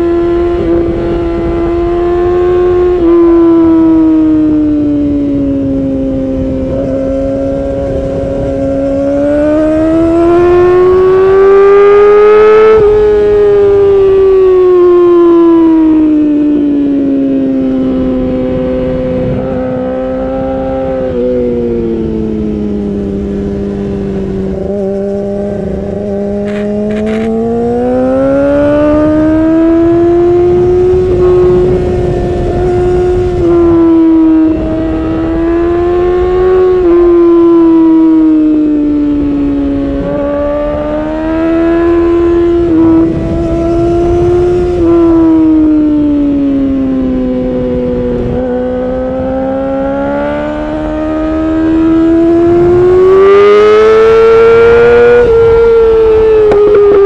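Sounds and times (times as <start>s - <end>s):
motorcycle engine revving high: 0.0s - 57.0s.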